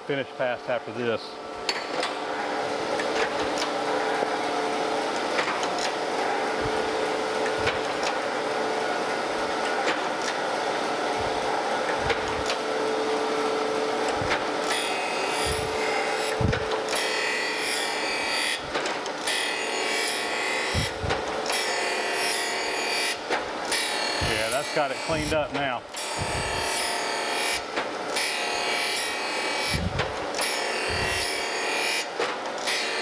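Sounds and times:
surface grinder running: 6.1 - 23.0, 26.0 - 27.6, 28.2 - 31.8
grinding wheel hissing on metal: 14.1 - 18.3, 20.2 - 21.8, 24.1 - 27.0, 30.7 - 31.5.

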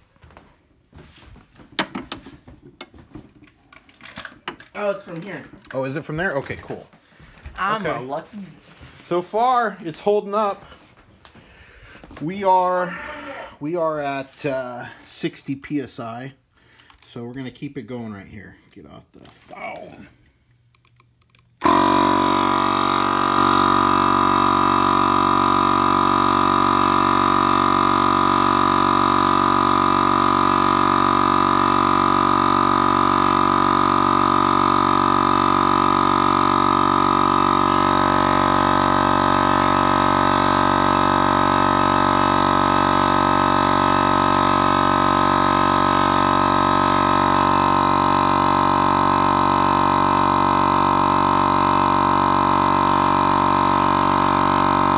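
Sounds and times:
electric air compressor droning: 11.6 - 15.3, 21.6 - 54.9.

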